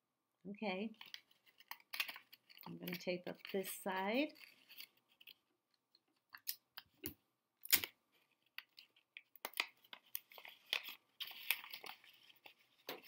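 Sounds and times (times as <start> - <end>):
paper crinkling: 1.0 - 5.4, 7.8 - 13.0.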